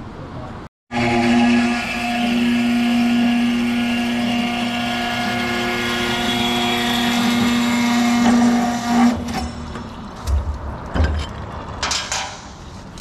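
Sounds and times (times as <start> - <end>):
cold saw whining hum: 0.9 - 10.0.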